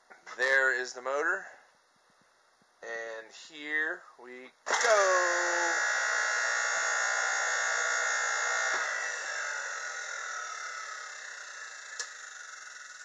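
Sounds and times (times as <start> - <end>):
electric motor whine: 4.7 - 13.0.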